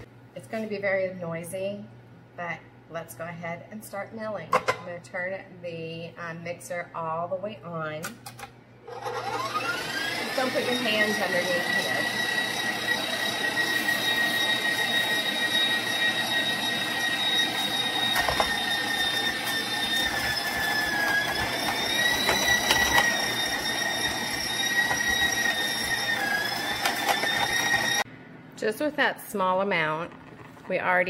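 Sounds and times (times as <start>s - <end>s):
stand mixer high whine: 8.9s - 28.1s.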